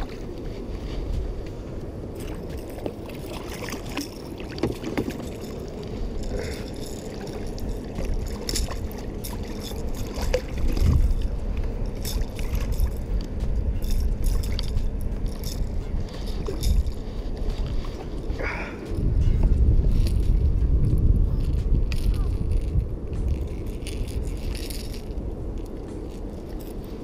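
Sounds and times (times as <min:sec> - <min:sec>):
water lapping at boat hull: 0:00.0 - 0:27.0
wind rumbling on microphone: 0:00.0 - 0:27.0
small knocks and splashes: 0:02.2 - 0:05.6.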